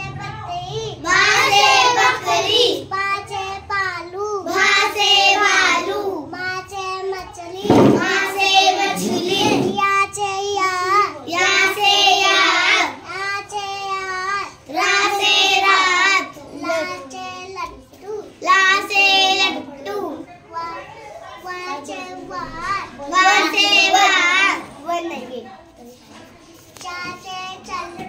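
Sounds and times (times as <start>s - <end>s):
child singing: 0.0s - 25.2s, 26.8s - 28.0s
dull thump: 7.6s - 8.2s.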